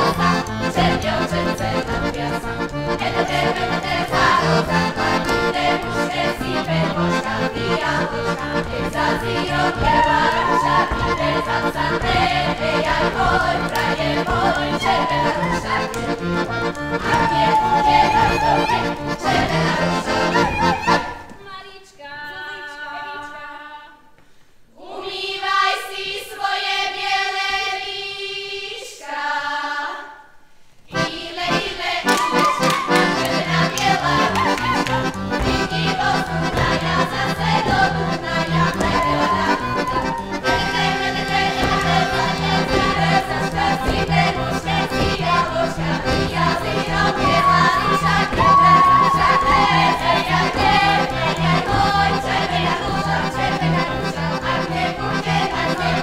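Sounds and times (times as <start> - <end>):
accordion folk band: 0.0 - 21.4, 30.9 - 56.0
voices singing: 0.0 - 23.7, 24.7 - 30.3, 30.9 - 56.0.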